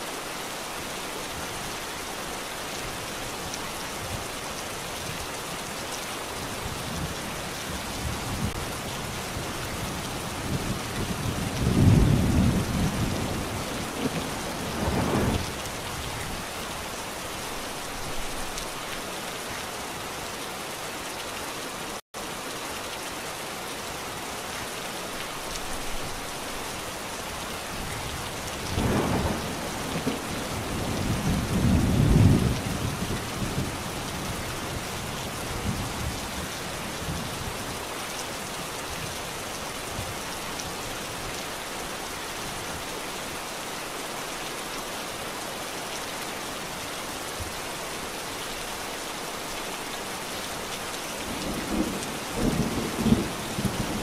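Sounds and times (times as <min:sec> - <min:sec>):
steady rain: 0:00.0 - 0:54.0
distant thunder rolling: 0:11.3 - 0:15.6, 0:28.7 - 0:32.6.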